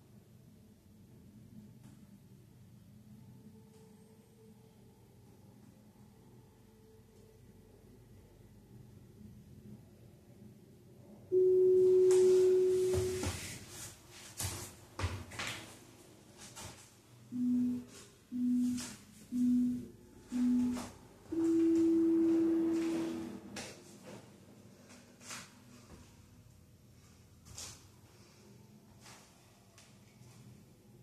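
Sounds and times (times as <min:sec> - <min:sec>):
timer beeps: 0:11.3 - 0:13.2, 0:17.3 - 0:23.2.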